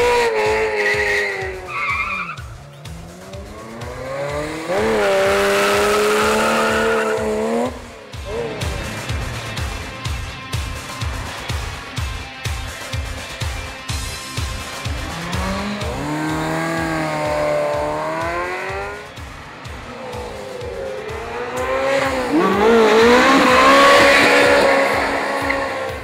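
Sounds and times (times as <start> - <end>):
tire squeal: 0.0 - 2.9, 4.7 - 7.8, 20.7 - 26.0
car engines revving past: 0.0 - 12.0, 14.6 - 26.0
background music with beat: 0.0 - 26.0.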